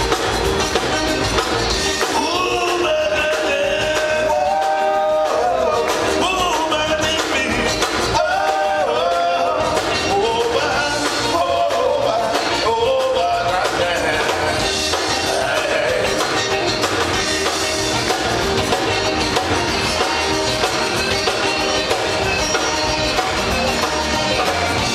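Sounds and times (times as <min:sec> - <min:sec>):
accordion: 0:00.0 - 0:24.9
drums: 0:00.0 - 0:24.9
electric guitars: 0:00.0 - 0:24.9
person singing: 0:02.0 - 0:16.6.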